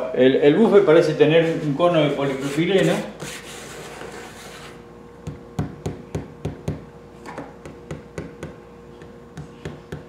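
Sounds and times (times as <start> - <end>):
hand brushing speaker cone: 1.5 - 3.7.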